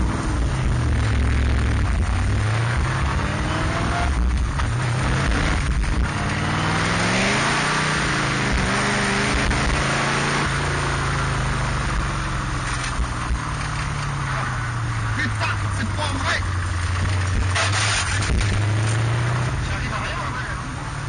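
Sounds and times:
race car engine revving: 0.0 - 21.0.

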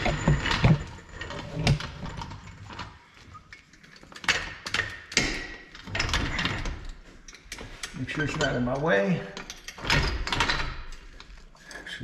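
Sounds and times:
floor jack metal clunks and knocks: 0.0 - 2.3.

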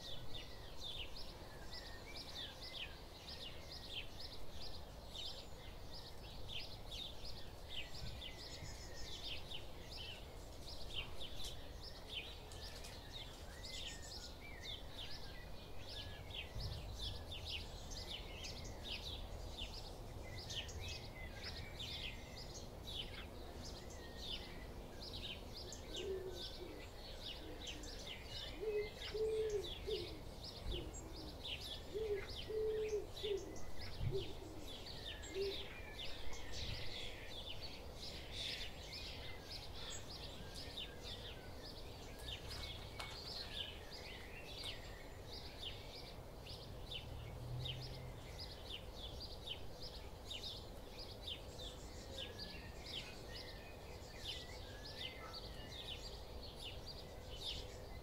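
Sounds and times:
songbirds chirping and singing: 0.0 - 58.0
pigeon cooing: 25.9 - 34.8.

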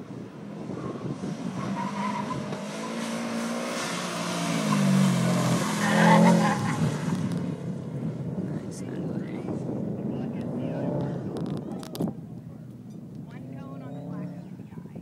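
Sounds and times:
car engine revving: 0.6 - 8.9.

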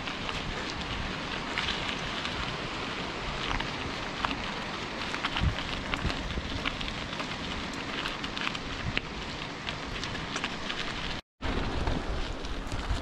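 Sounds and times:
bike tyres crunching on gravel: 0.0 - 13.0.

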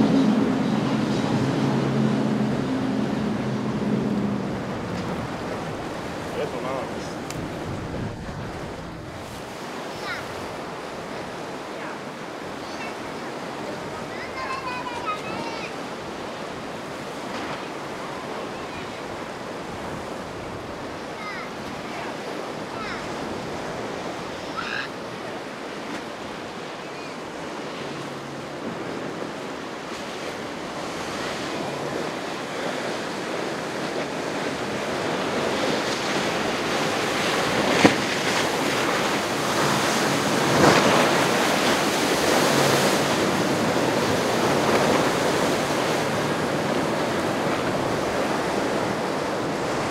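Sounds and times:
ocean waves breaking: 0.0 - 49.9
wind buffeting microphone: 0.0 - 49.9
sharp water slaps: 37.4 - 39.3.

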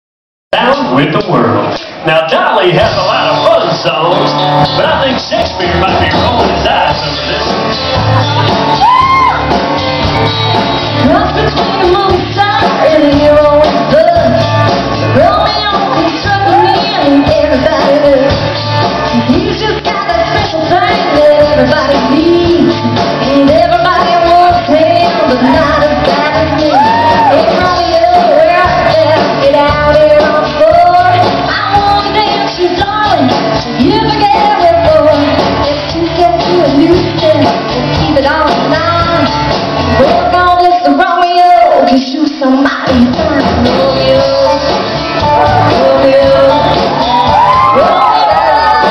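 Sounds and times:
live band playing: 0.5 - 48.9
woman singing: 10.2 - 48.9.

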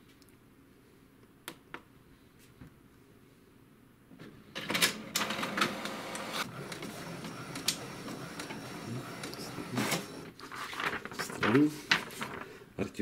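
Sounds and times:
printer sharp clicks: 4.6 - 10.2
inkjet printer running: 4.7 - 10.3.

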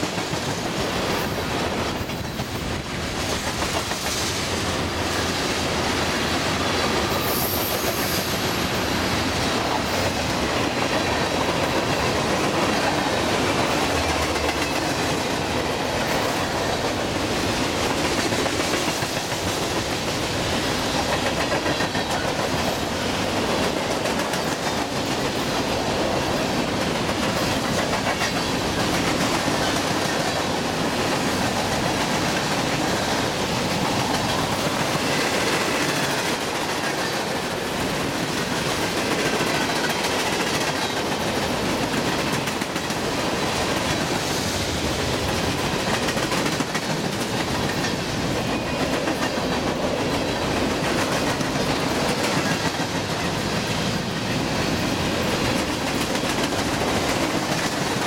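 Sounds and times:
freight train wheels clattering: 0.0 - 58.0.

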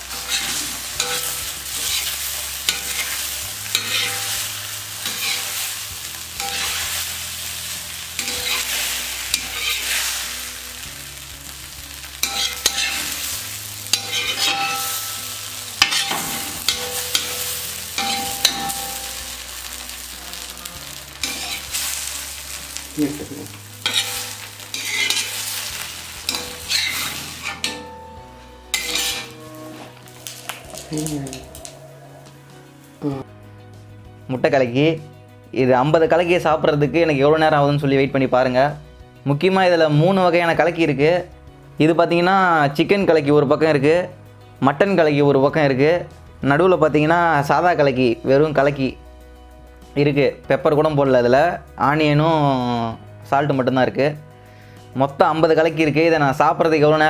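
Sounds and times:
metal spatula scraping a pan: 0.0 - 10.4, 12.1 - 22.5, 23.2 - 32.3
egg sizzling on a griddle: 0.0 - 27.9, 28.6 - 32.3.

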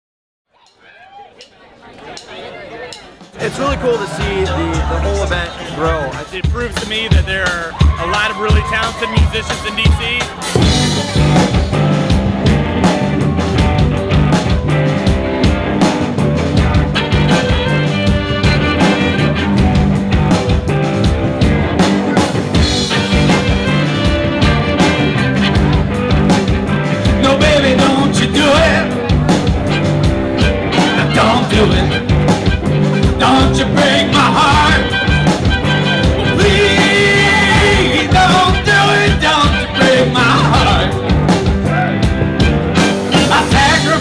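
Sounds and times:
rock band music: 3.2 - 44.0
person singing: 27.0 - 41.0.

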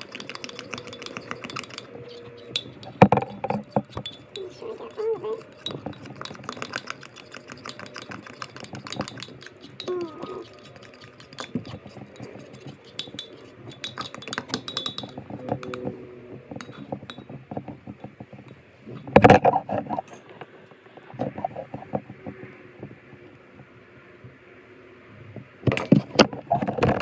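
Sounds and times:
spoon scraping a ceramic mug: 0.0 - 15.9.

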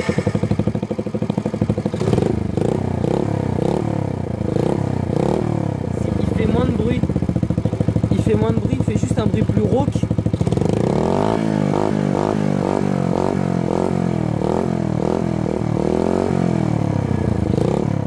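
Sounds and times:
small motorbike engine revving: 1.9 - 6.7, 10.3 - 16.6, 17.4 - 18.0.

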